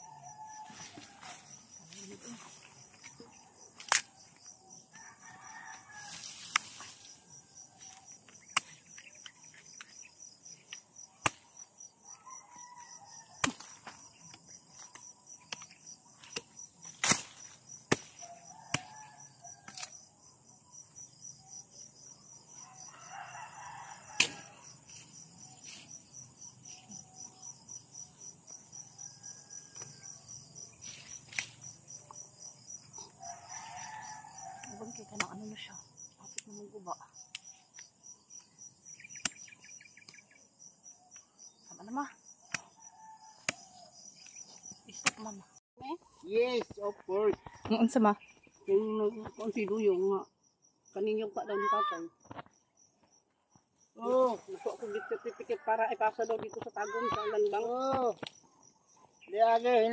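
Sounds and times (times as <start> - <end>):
insects chirring: 0.0 - 59.9
knife chopping roots: 13.4 - 19.9, 24.2 - 24.5, 43.4 - 43.6, 44.9 - 45.4.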